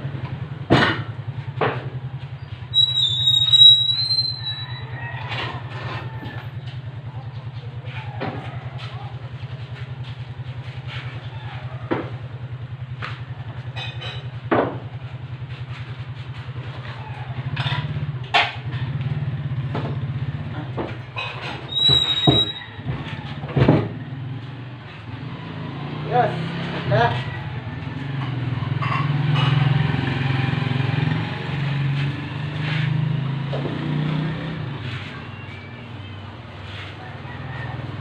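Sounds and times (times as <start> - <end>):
table leg squeak scraping: 2.3 - 6.4, 21.2 - 23.3.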